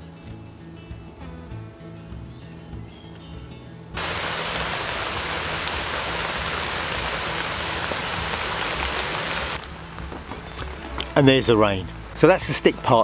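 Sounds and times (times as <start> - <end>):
rain falling: 4.0 - 10.1.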